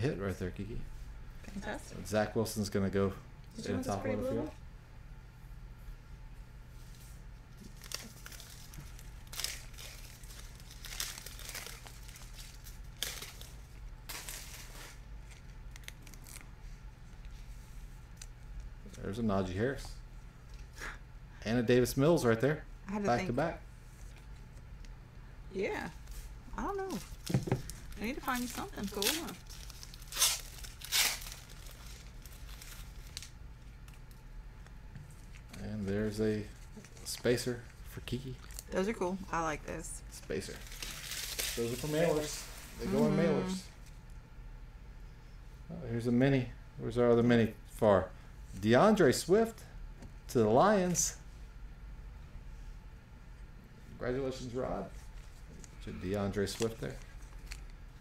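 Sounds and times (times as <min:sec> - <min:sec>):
faint low hum: 0:00.0 - 0:58.0
foil wrapper tearing and crinkling: 0:07.6 - 0:16.5, 0:26.9 - 0:34.2, 0:40.3 - 0:42.4, 0:56.3 - 0:57.8.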